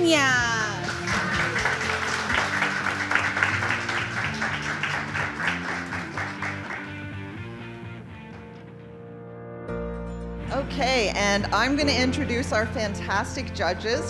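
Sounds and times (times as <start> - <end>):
small group applauding: 0.0 - 7.8
background music: 0.0 - 14.0.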